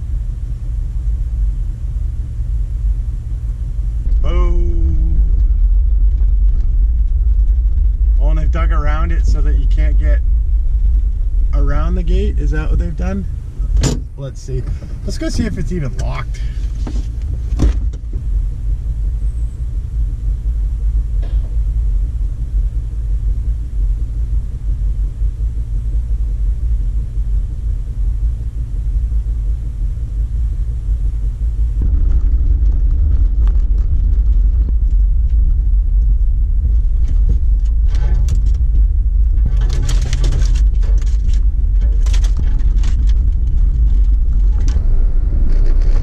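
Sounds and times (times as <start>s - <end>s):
car driving on rough trail: 0.0s - 46.0s
car engine idling: 0.0s - 46.0s.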